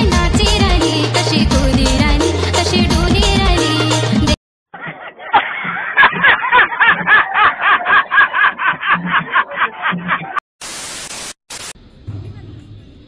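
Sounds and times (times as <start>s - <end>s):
man laughing loudly: 4.7s - 10.4s
hiss: 10.6s - 11.8s.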